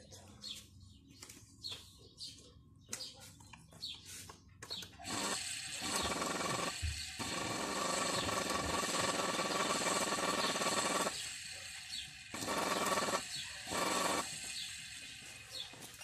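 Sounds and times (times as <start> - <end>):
electric motor hum with whine: 5.0 - 16.0.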